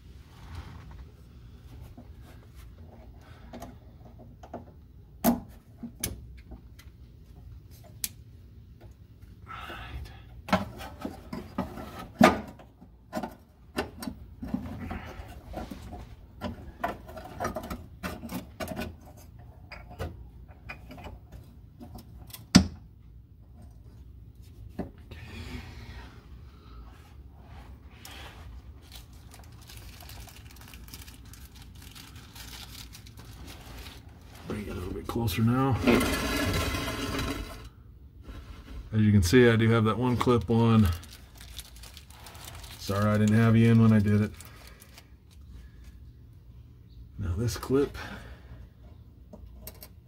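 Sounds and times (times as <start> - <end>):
hands working on hoses and clips: 1.8 - 9.4, 10.4 - 22.8.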